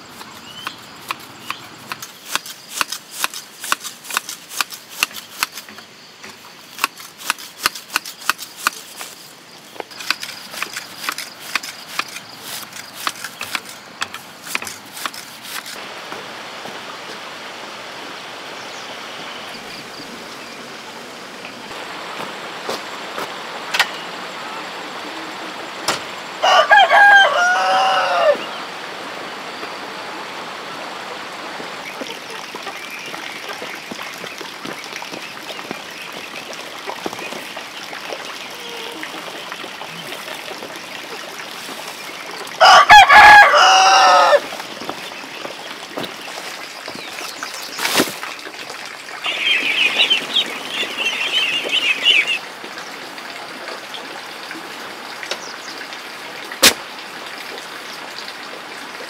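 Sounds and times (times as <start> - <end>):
steady rushing hiss: 0.0 - 26.4
rooster crowing: 26.4 - 28.5, 42.6 - 44.4.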